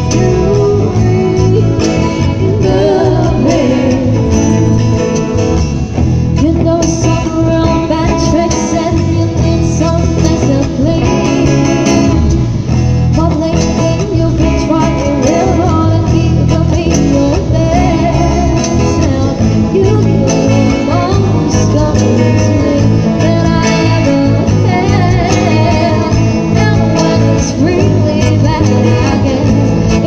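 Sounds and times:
amplified electric guitars: 0:00.0 - 0:30.0
low bass line: 0:00.0 - 0:30.0
woman singing into a microphone: 0:00.0 - 0:30.0.

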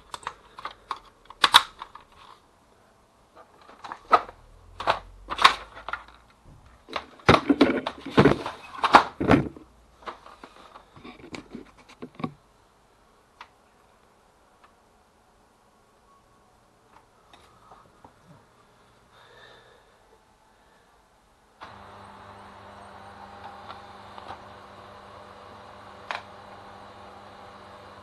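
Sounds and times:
plastic clicks and snaps: 0:00.1 - 0:02.3
paper cassette sliding into printer: 0:21.6 - 0:28.0.

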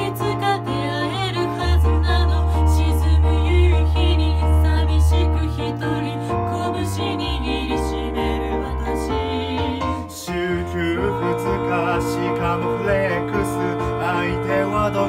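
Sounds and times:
trio singing in harmony: 0:00.0 - 0:15.0
sustained low bass line: 0:09.6 - 0:15.0.

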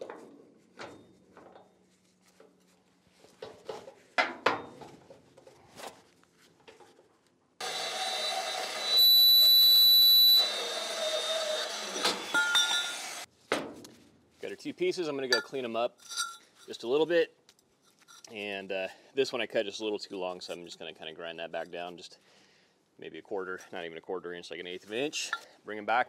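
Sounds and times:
band saw cutting steel: 0:07.6 - 0:13.3.

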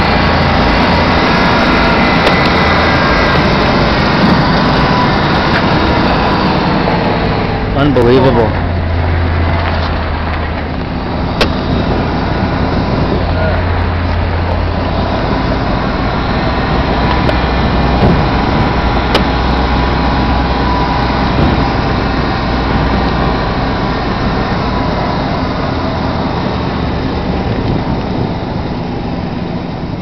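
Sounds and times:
cab rumbling on rough ground: 0:00.0 - 0:30.0
truck engine running: 0:00.0 - 0:30.0
knocks from bumps: 0:17.2 - 0:19.5, 0:21.2 - 0:22.2.

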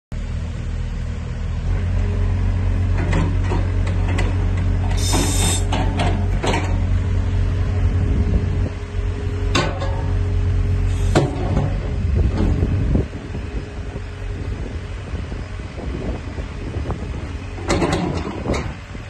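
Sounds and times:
excavator diesel engine running: 0:00.2 - 0:19.0
hydraulic hiss: 0:04.9 - 0:05.8, 0:10.9 - 0:11.3
bucket and arm clanking: 0:09.5 - 0:10.2, 0:17.6 - 0:18.8.

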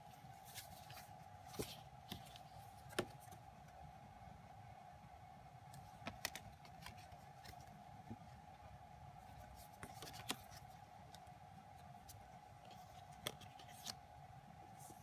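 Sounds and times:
faint steady hum: 0:00.0 - 0:15.0
cards clicking and tapping: 0:01.5 - 0:03.4, 0:05.8 - 0:07.6, 0:09.8 - 0:10.6, 0:12.9 - 0:14.0.

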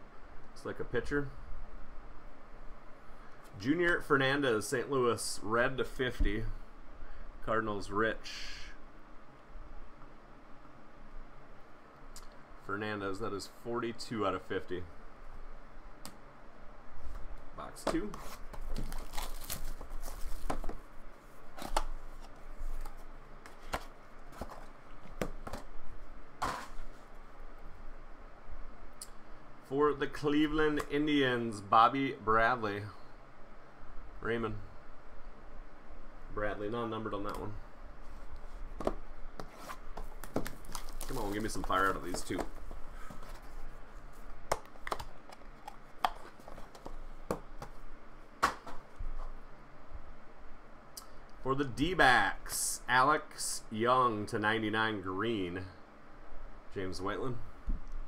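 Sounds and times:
cardboard box handling: 0:17.8 - 0:20.9, 0:21.5 - 0:25.7, 0:38.1 - 0:47.8.

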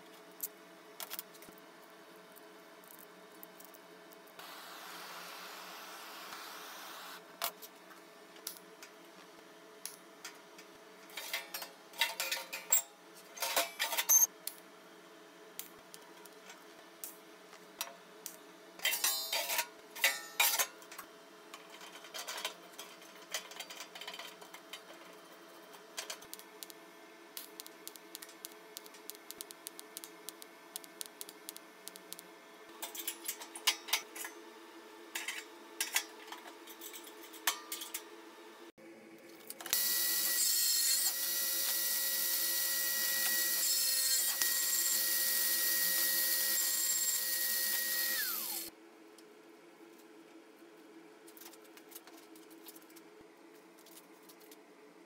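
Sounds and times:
welding arc hissing: 0:04.4 - 0:07.2, 0:27.4 - 0:32.3, 0:39.8 - 0:48.7
steel parts clinking and scraping: 0:11.1 - 0:14.3, 0:18.8 - 0:20.7.

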